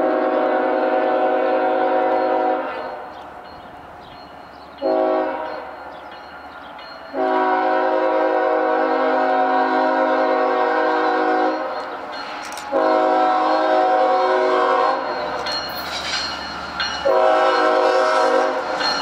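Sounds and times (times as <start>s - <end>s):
locomotive air horn blasts: 0.0s - 3.1s, 4.8s - 5.7s, 7.1s - 11.7s, 12.7s - 15.1s, 17.0s - 18.7s.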